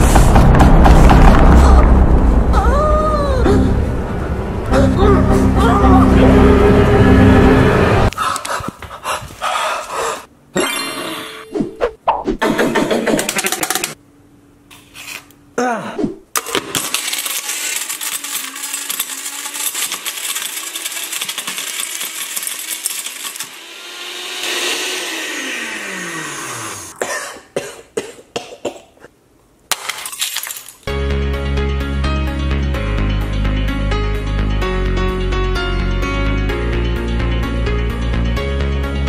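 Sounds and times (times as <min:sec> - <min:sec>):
music: 0:00.0 - 0:08.1, 0:30.9 - 0:39.0
blender grinding: 0:16.4 - 0:27.0.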